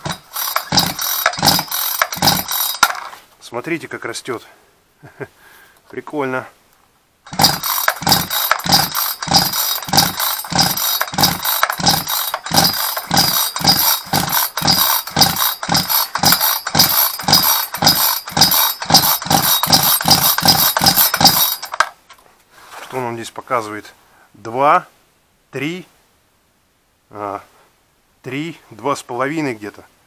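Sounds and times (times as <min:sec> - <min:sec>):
chainsaw recoil starter pulled: 0:00.0 - 0:03.2, 0:07.3 - 0:22.0.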